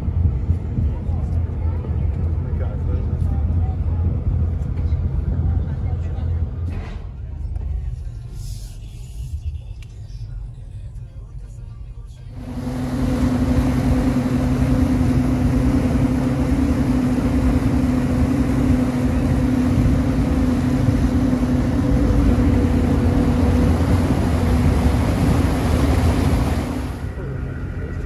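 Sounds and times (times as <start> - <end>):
ferry engine humming: 0.0 - 28.0
water rushing in wake: 12.4 - 27.7.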